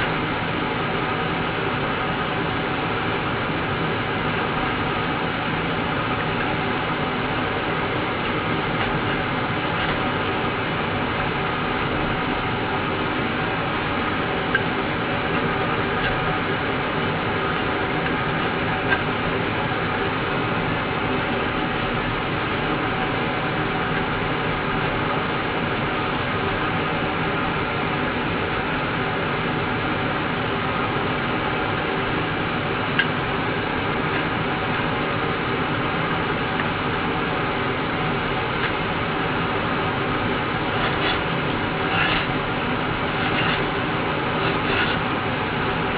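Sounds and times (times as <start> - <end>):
steady rumbling noise: 0.0 - 45.9
metal scraper clicking and scraping: 40.8 - 42.4, 43.1 - 43.7, 44.4 - 45.1.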